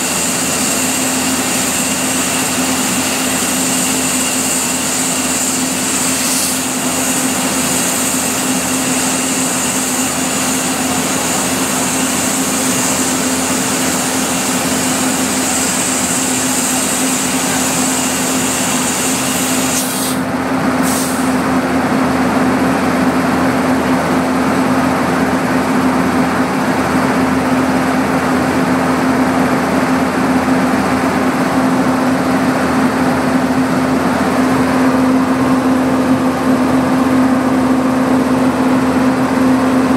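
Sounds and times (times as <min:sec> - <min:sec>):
compressed air hissing: 0:00.0 - 0:21.4
locomotive hum: 0:00.0 - 0:39.9.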